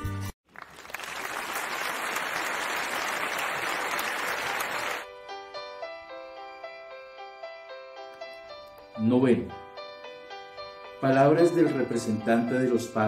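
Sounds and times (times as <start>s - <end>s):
hands clapping: 0.5s - 5.1s
melodic music with sustained notes: 5.1s - 13.0s.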